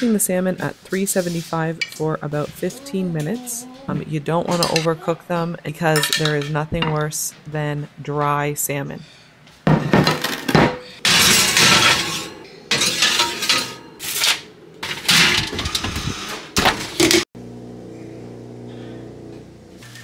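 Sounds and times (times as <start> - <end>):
glass dishes clattering: 9.7 - 15.5
steady low hum: 17.4 - 19.8.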